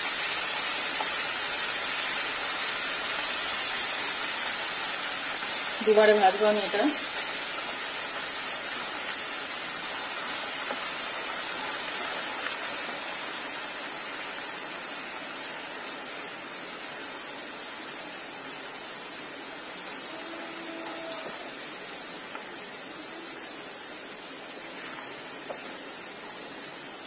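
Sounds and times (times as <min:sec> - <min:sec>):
potato sizzling in hot oil: 0:00.0 - 0:27.0.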